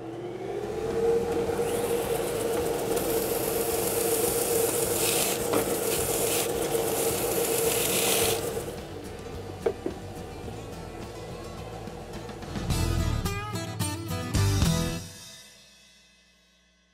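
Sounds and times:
sander motor hum: 0.0 - 10.7
dry rasp of wood sanding: 2.9 - 8.6.

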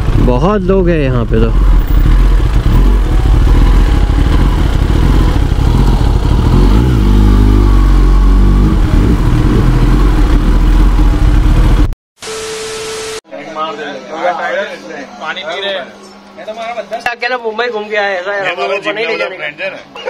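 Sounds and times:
motorcycle engine at low speed: 0.0 - 12.0.

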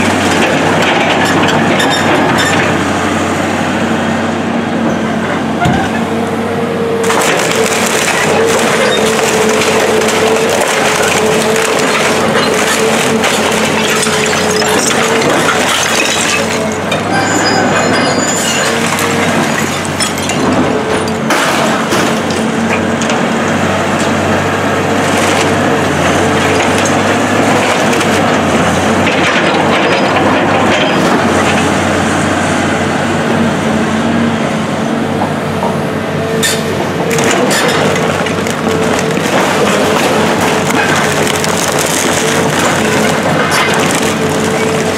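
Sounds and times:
excavator diesel engine running: 0.0 - 44.9
debris crunching and clattering: 7.0 - 23.2, 25.0 - 31.6, 36.4 - 44.9.

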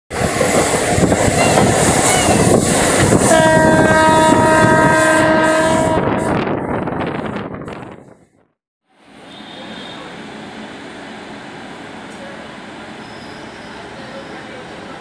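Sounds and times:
train wheel and wind noise: 0.1 - 15.0
train horn blast: 3.2 - 6.5, 9.2 - 10.2.

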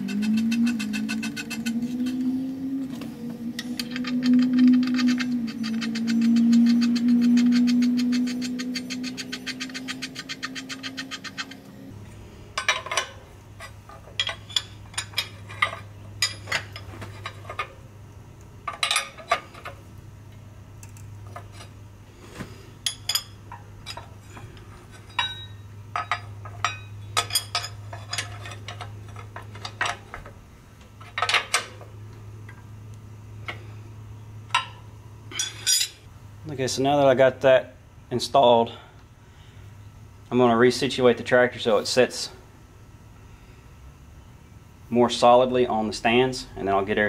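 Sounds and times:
loud steady hum: 0.0 - 47.0
wrench clinking on metal: 25.0 - 30.0, 35.3 - 36.0.

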